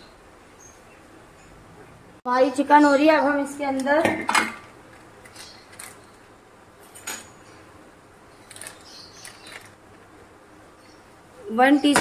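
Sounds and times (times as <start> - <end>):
kitchen things clicking and knocking: 3.8 - 4.7.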